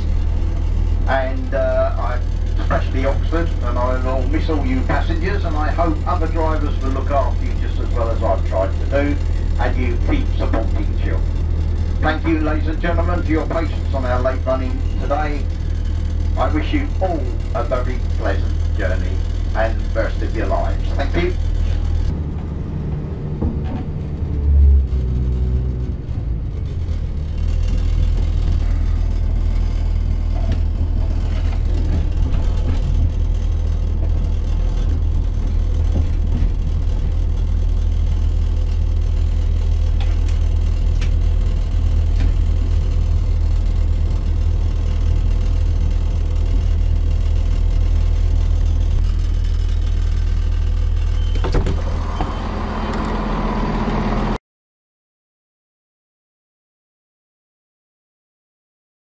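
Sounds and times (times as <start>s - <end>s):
train diesel engine drone: 0.0s - 54.4s
train wheels on rails: 0.0s - 54.4s
thump: 23.4s - 23.9s, 51.4s - 52.3s.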